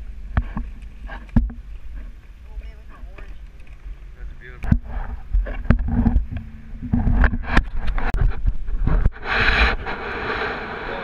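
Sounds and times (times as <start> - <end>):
wind buffeting microphone: 0.0 - 11.0
knocks and scrapes on kayak hull: 0.2 - 10.6
rushing noise burst: 6.1 - 11.0.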